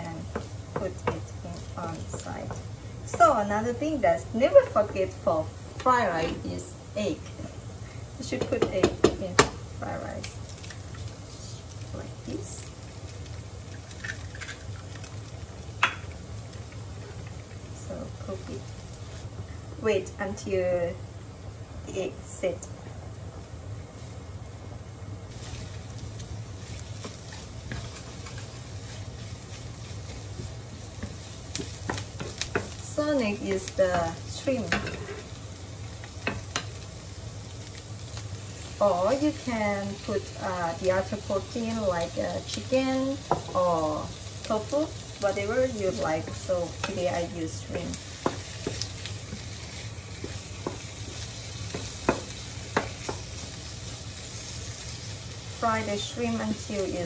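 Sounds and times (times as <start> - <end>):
food sizzling in a pan: 0.0 - 57.0
spatula tapping pan: 0.2 - 1.3, 8.4 - 9.6, 30.1 - 32.8, 47.7 - 53.4
wooden spatula scraping a pan: 26.6 - 32.8, 33.6 - 35.4, 44.6 - 53.4.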